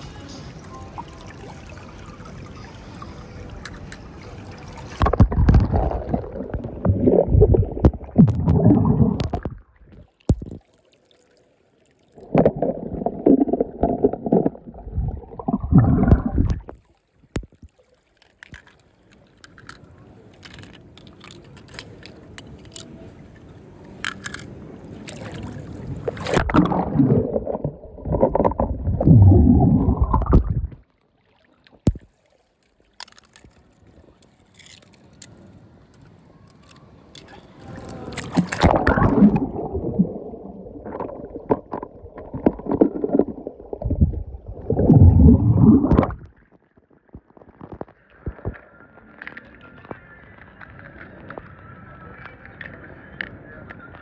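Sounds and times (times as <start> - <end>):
water trickling: 0.1 - 46.5
water sloshing and gurgling: 0.9 - 48.6.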